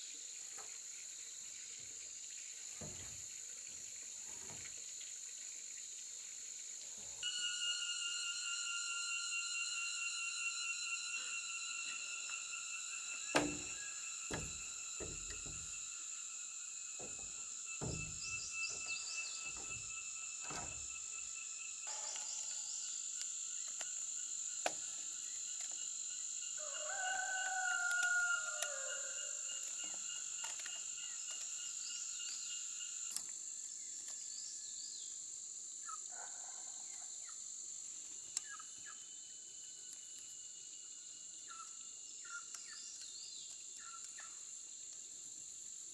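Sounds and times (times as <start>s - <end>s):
insects chirring: 0.0s - 45.9s
dull wooden knocks: 13.4s - 15.8s, 17.0s - 20.8s
rooster crowing: 26.6s - 29.6s.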